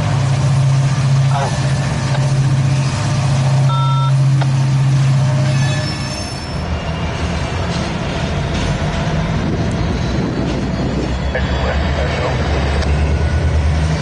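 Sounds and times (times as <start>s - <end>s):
freight cars rolling: 0.0s - 14.0s
steel wheels squealing: 5.2s - 7.6s.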